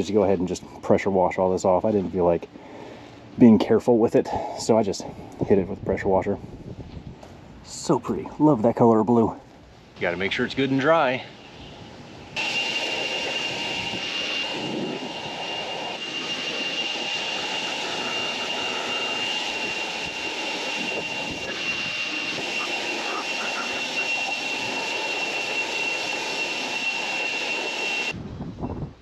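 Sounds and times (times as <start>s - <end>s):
leaf blower whining: 12.4s - 28.2s.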